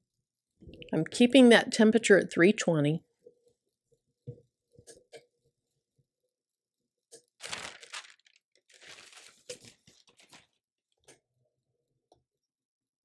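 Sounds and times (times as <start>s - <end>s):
parchment paper rustling: 7.4s - 10.6s.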